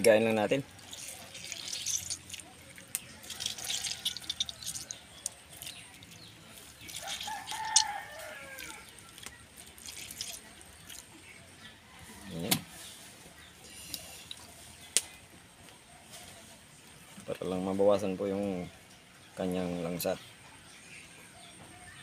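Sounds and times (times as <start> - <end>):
wet squishing of fish flesh: 0.6 - 11.1
small clicks and splashes: 0.7 - 11.2.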